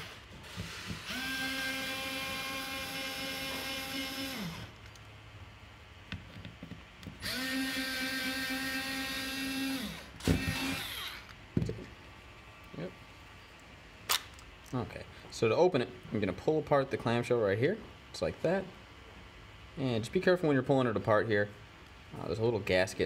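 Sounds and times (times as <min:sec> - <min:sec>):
electric screwdriver whining: 0:00.0 - 0:04.8, 0:07.2 - 0:11.3.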